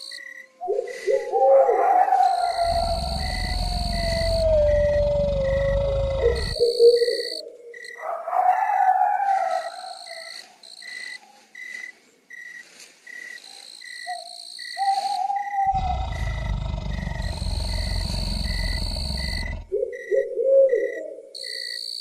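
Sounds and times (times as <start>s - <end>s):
low wavering insect call: 0.0s - 8.8s, 9.4s - 22.0s
crickets chirping: 0.0s - 22.0s
high insect trilling: 2.2s - 7.9s.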